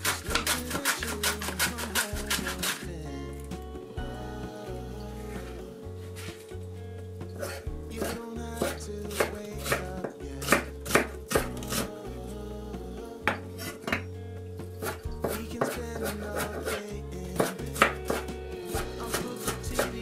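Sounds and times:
knife chopping on cutting board: 0.0s - 2.8s, 7.4s - 11.9s, 14.8s - 16.8s
background music: 0.0s - 20.0s.

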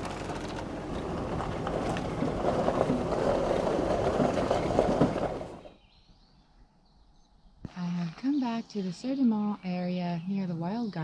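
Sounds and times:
car rumbling on gravel: 0.0s - 5.8s
gravel crunching under tyres: 0.0s - 6.4s.

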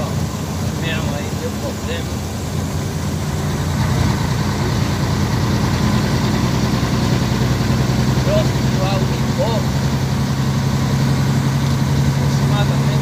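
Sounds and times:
truck engine droning in cab: 0.0s - 13.0s.

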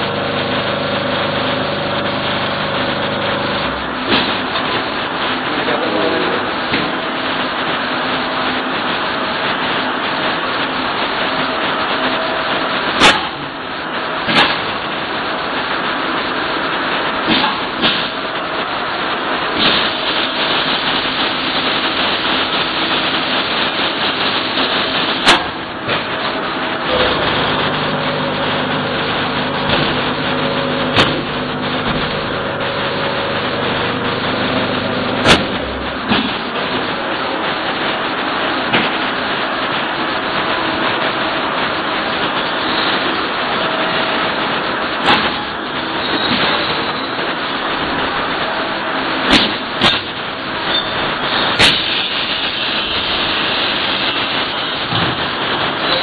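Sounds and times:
machine motor hum and whine: 0.0s - 56.0s
sharp machine clunk: 13.0s - 13.5s, 24.8s - 26.2s, 26.9s - 32.8s, 33.5s - 36.9s, 45.0s - 46.9s, 49.2s - 52.8s.

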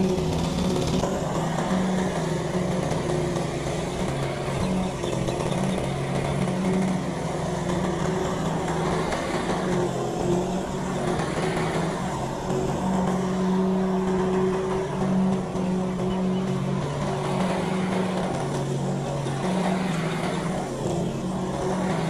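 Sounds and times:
lawn mower engine running: 0.0s - 22.0s.

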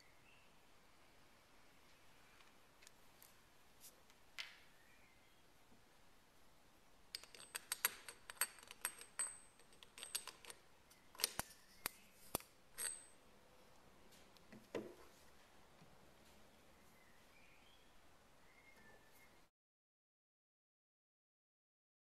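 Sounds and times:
metal parts clinking: 7.1s - 13.2s.

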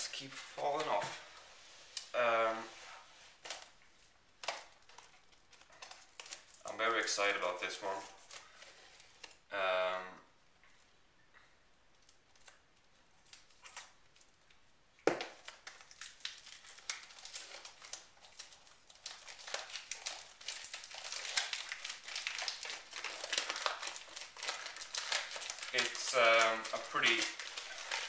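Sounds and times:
packaging crinkling and tearing: 3.3s - 9.5s, 12.0s - 28.0s.

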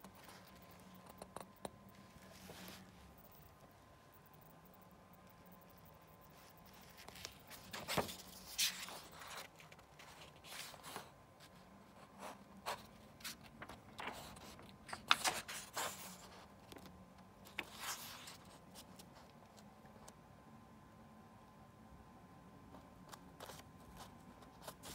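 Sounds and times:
paper rustling: 6.4s - 19.6s
book pages turning: 6.7s - 11.6s, 12.2s - 19.7s, 23.0s - 24.9s.

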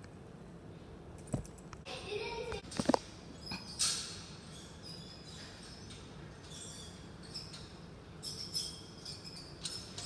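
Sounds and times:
short high squeaks: 3.3s - 10.0s.

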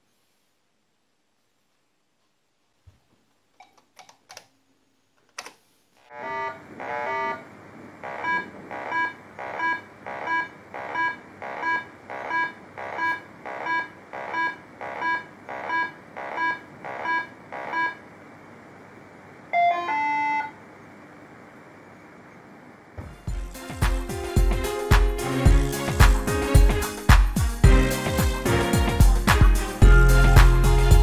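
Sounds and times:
steady hiss: 0.0s - 3.5s
short electronic beeps: 8.1s - 18.0s.

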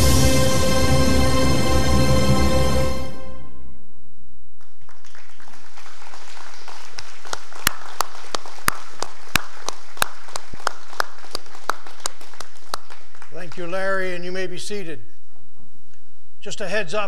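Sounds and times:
person clapping loudly: 4.6s - 13.9s
crowd applauding: 4.6s - 14.2s.

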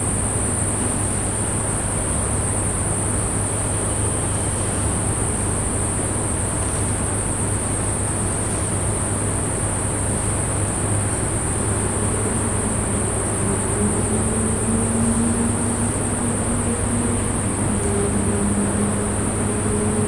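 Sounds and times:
low hum: 0.0s - 20.0s
high-pitched drone: 10.9s - 20.0s
faint sustained low tones: 11.1s - 20.0s.

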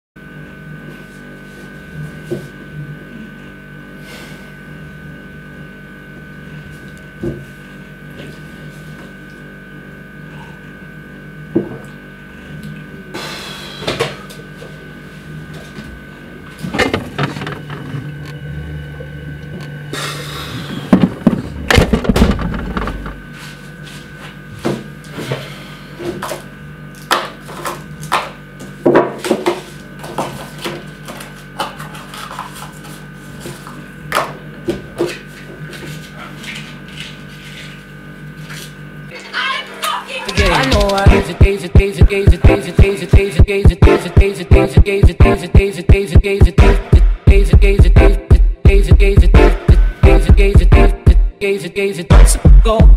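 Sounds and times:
steady low hum: 0.2s - 52.9s
objects knocking and clattering: 20.9s - 23.2s.

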